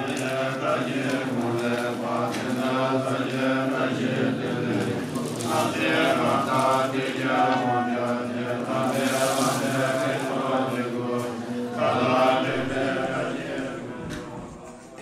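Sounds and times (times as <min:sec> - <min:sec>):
men chanting prayers: 0:00.0 - 0:15.0.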